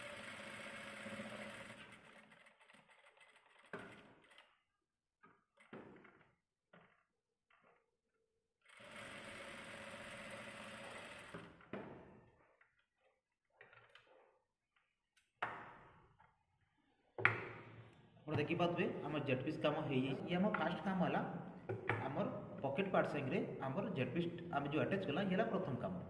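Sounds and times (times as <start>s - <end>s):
industrial sewing machine running: 0.0s - 3.7s, 8.7s - 11.4s.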